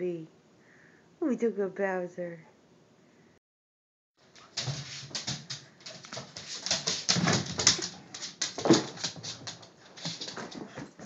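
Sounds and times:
dog playing with rubber toy: 0:04.2 - 0:11.0.

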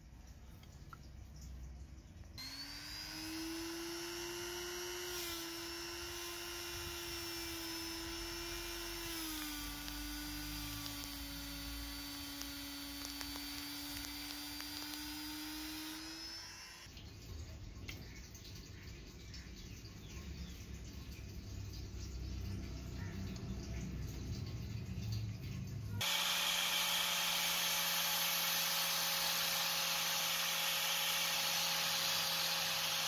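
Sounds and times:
rotary tool whining: 0:02.4 - 0:16.9, 0:26.0 - 0:33.0.

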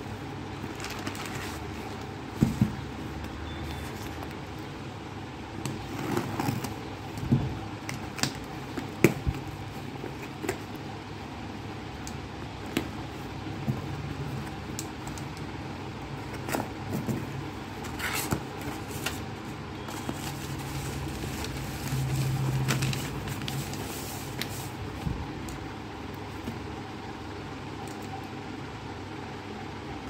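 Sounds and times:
cardboard and paper rustling: 0:00.6 - 0:03.1, 0:16.2 - 0:25.2.

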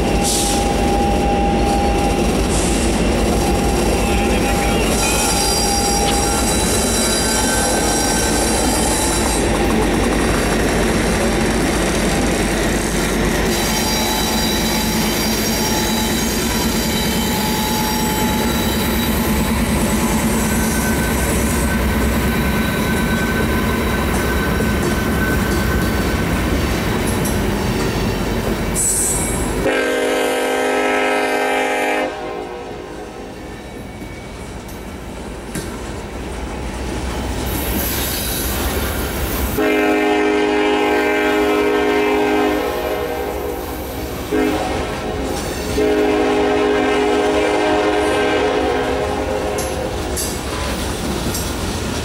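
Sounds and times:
diesel locomotives passing: 0:00.0 - 0:52.0
train wheels on rails: 0:00.0 - 0:52.0
thin wheel squeals: 0:03.4 - 0:09.5, 0:13.4 - 0:26.2.

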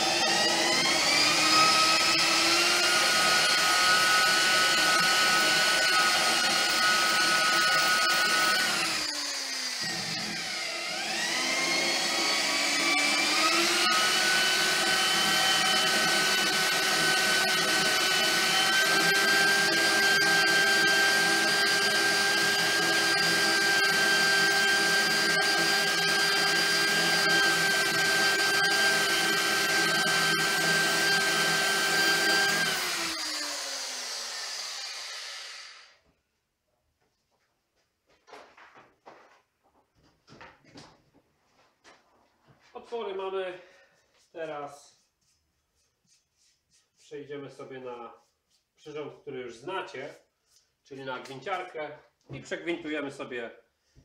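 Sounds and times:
electric drill drilling metal: 0:00.0 - 0:36.0.

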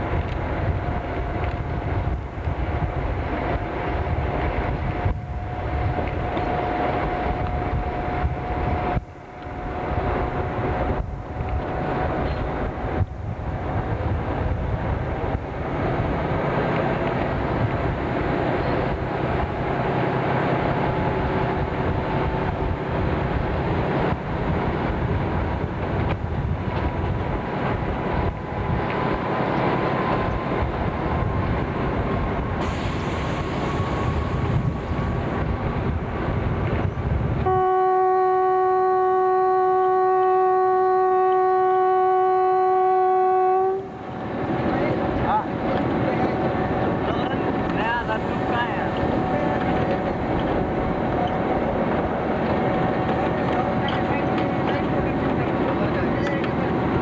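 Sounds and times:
diesel locomotive engine: 0:00.0 - 0:57.0
train wheels on rail: 0:00.0 - 0:57.0
locomotive horn blast: 0:37.4 - 0:44.0.

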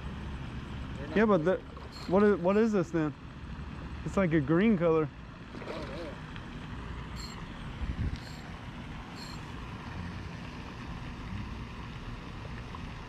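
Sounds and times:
faint high chirps: 0:07.2 - 0:07.5, 0:09.2 - 0:09.5.

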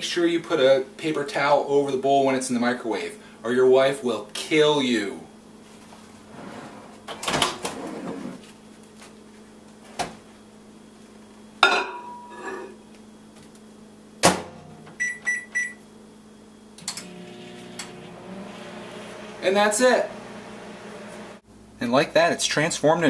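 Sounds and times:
bowl sliding: 0:12.1 - 0:12.8
microwave humming: 0:14.3 - 0:21.4
keypad beeps: 0:15.0 - 0:15.8.

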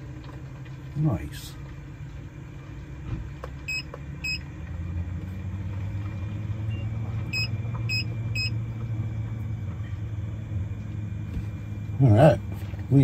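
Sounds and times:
roof vent fan humming: 0:00.0 - 0:13.0
short electronic beeps: 0:03.7 - 0:04.4, 0:06.7 - 0:08.6.

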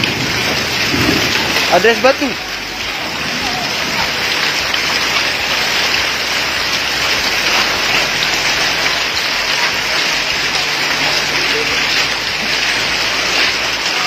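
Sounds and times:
heavy rain and hail on pavement: 0:00.0 - 0:14.0.

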